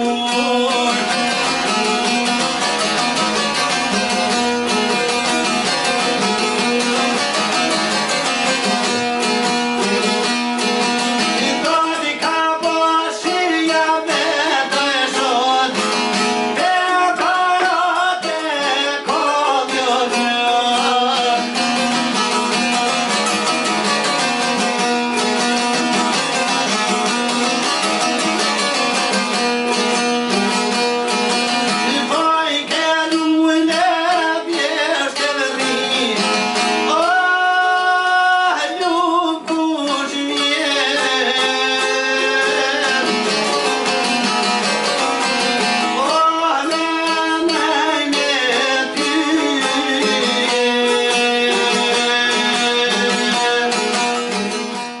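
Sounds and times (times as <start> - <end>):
lutes strummed: 0.0 - 55.0
man singing folk song: 0.0 - 55.0.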